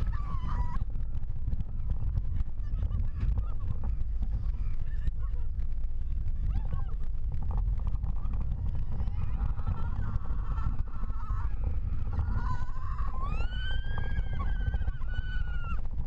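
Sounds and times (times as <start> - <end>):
wind rush on microphone: 0.0 - 16.0
riders screaming: 8.8 - 15.9.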